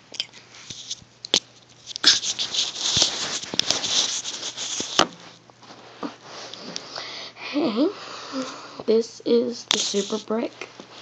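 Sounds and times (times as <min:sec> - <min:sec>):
scraping and rubbing: 0:01.8 - 0:06.8, 0:09.7 - 0:11.0.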